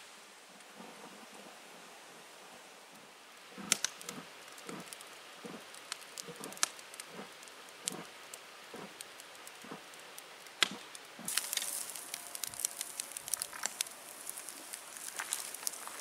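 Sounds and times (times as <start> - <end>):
campfire crackling and popping: 3.3 - 16.0.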